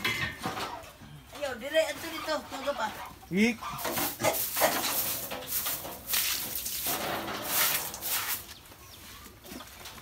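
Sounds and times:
water splashing onto concrete: 0:04.4 - 0:08.4.

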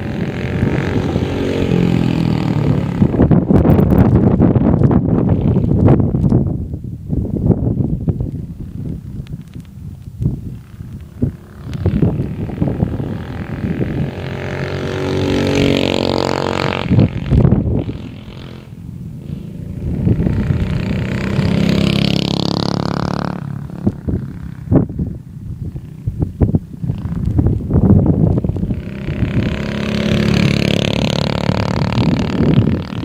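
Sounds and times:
go-kart engine accelerating past: 0:00.0 - 0:04.1, 0:10.6 - 0:24.9, 0:28.4 - 0:33.0
wind buffeting microphone: 0:00.0 - 0:33.0.

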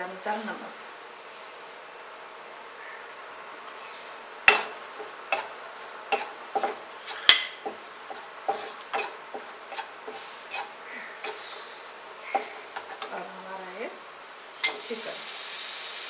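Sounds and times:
spatula knocking against pan: 0:04.5 - 0:05.5, 0:06.1 - 0:11.5, 0:12.2 - 0:13.2
wooden spatula scraping pan: 0:04.5 - 0:13.5.

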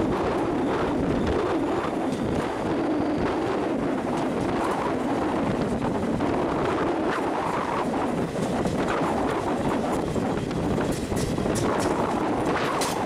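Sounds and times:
electric train running: 0:00.0 - 0:13.0
wind on microphone: 0:00.0 - 0:13.0
train wheels clicking: 0:06.9 - 0:13.0.

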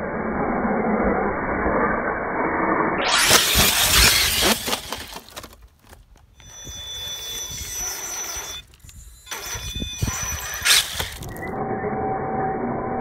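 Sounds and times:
electric motor whining: 0:03.1 - 0:05.6, 0:06.2 - 0:11.6.

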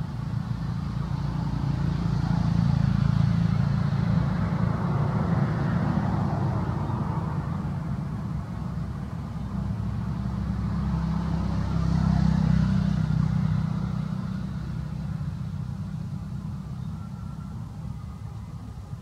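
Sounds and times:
passing vehicle engine rumble: 0:00.0 - 0:19.0.

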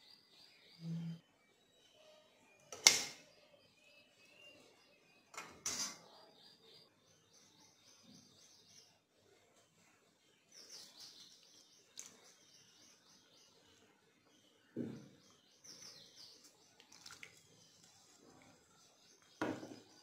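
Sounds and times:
faint bird chirping: 0:00.0 - 0:20.0.

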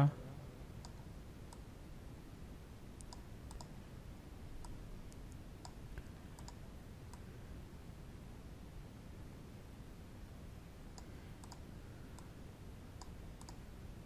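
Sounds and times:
low background hiss: 0:00.0 - 0:14.0
computer mouse clicking: 0:00.8 - 0:01.7, 0:03.0 - 0:03.8, 0:04.6 - 0:07.3, 0:10.9 - 0:12.3, 0:13.0 - 0:13.7.

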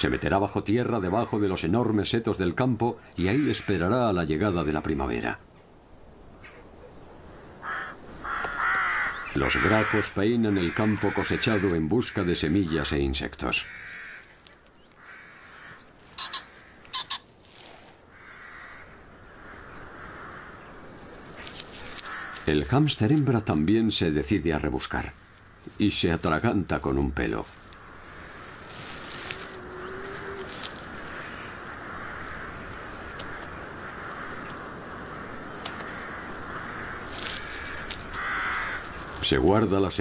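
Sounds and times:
steady background hiss: 0:00.0 - 0:40.0
rooks cawing: 0:03.0 - 0:04.1, 0:07.2 - 0:17.4, 0:18.0 - 0:23.3, 0:25.2 - 0:39.8.

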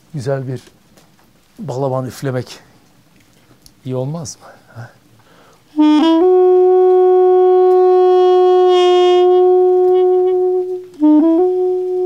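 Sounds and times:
double-reed pipe playing: 0:05.7 - 0:12.0.

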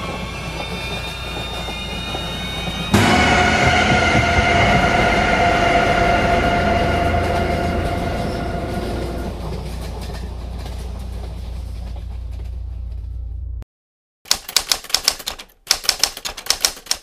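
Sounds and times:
train carriage rumble: 0:00.0 - 0:13.6
high multi-toned ringing: 0:03.0 - 0:09.7.

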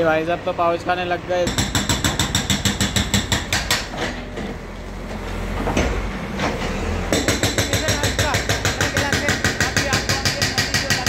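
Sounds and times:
diesel engine running: 0:00.0 - 0:01.6
hydraulic breaker hammering concrete: 0:01.5 - 0:04.3, 0:07.1 - 0:11.0.

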